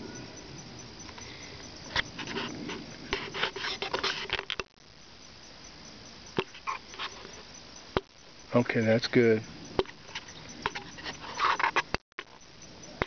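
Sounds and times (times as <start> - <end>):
low outdoor hiss: 0.0 - 13.0
rustling: 1.1 - 4.8, 9.2 - 13.0.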